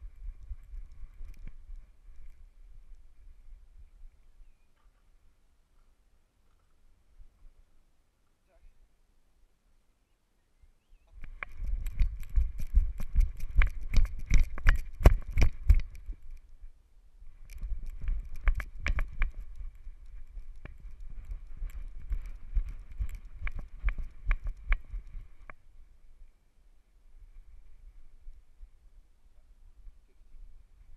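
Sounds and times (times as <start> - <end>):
dog galloping thumps: 11.2 - 16.3, 17.5 - 25.5.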